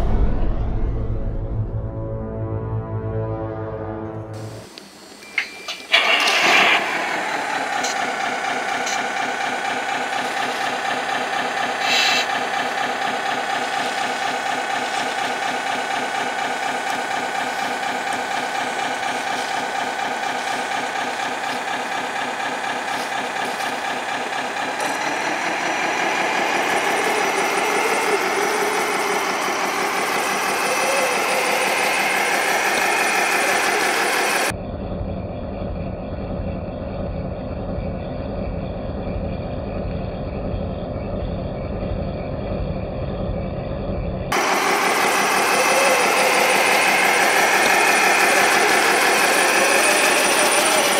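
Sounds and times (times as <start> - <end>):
toy truck motor humming: 5.7 - 34.5, 44.3 - 50.9.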